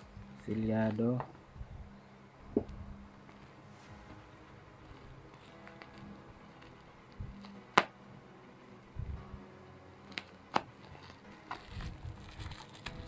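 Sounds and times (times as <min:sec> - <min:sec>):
sharp snaps of packaging: 0:07.4 - 0:08.0, 0:10.1 - 0:11.8
plastic crinkling: 0:10.1 - 0:13.0.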